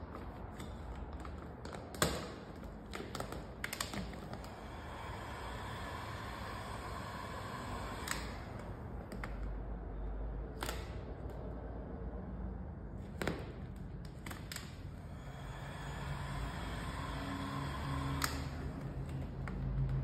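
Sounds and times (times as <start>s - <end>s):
heat gun whining: 3.9s - 8.9s, 15.1s - 19.2s.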